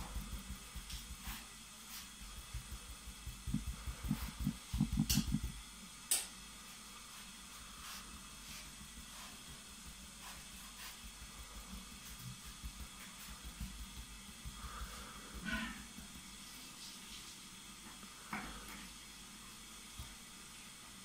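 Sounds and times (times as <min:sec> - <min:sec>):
brush dabbing paint thumps: 0:00.0 - 0:05.6, 0:07.1 - 0:17.3
faint steady hiss: 0:00.0 - 0:21.0.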